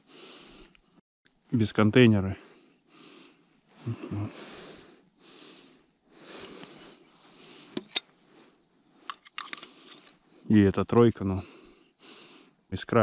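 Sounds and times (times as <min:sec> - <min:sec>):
person breathing: 0:00.0 - 0:00.9, 0:02.4 - 0:10.5, 0:11.4 - 0:12.7
plastic shotgun shells clicking: 0:09.1 - 0:10.2.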